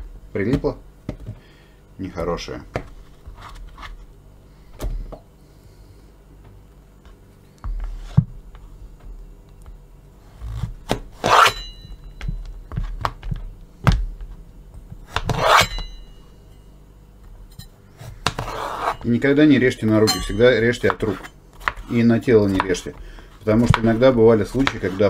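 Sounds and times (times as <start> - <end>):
knife scraping strokes: 11.2 - 11.8, 15.2 - 16.0, 18.4 - 19.1.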